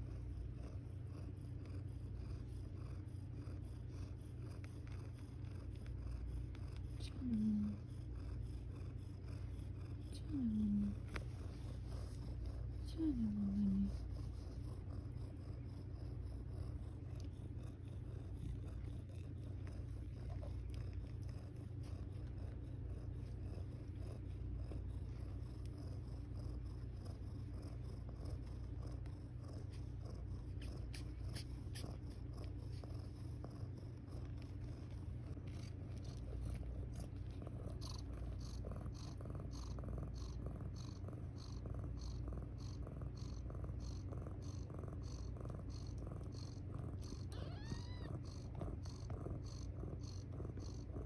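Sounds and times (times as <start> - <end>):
cat purring: 0.0 - 51.0
soft regular ticking: 14.8 - 51.0.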